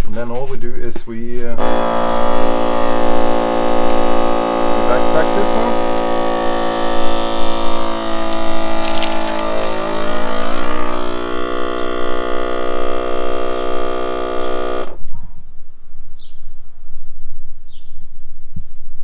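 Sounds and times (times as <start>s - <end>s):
vacuum sealer pump humming: 1.6s - 15.0s.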